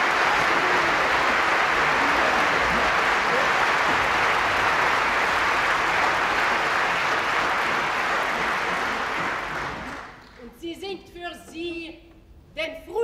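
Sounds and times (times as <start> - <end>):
crowd applause: 0.0 - 10.4.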